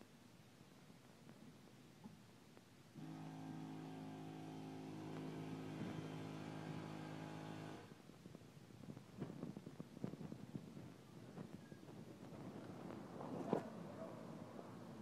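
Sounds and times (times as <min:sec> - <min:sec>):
faint steady machine hum: 0:02.9 - 0:08.0.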